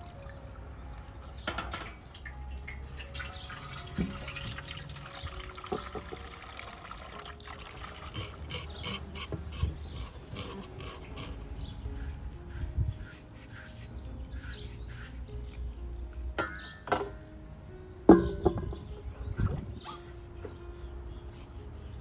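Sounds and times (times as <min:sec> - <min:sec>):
water splashing in metal basin: 0:01.3 - 0:08.4
scraping hooves by hand: 0:07.8 - 0:15.8.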